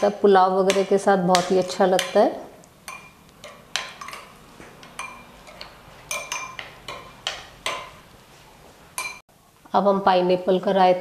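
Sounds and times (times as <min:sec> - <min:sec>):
metal spoon clinking glass bowl: 0:02.9 - 0:08.0, 0:09.0 - 0:09.2.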